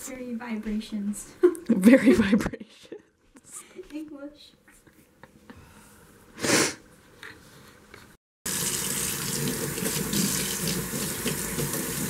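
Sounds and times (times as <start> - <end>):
sink faucet running: 8.5 - 12.0
water splashing onto head: 8.5 - 12.0.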